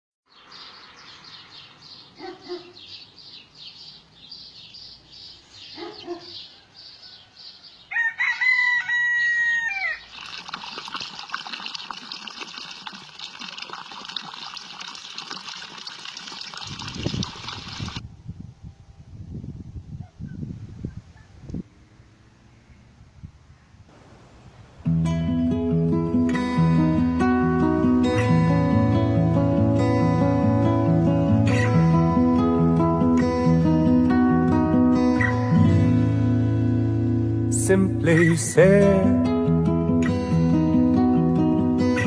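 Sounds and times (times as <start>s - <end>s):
rooster crowing: 6.4s - 10.1s
stream over rocks: 10.0s - 18.0s.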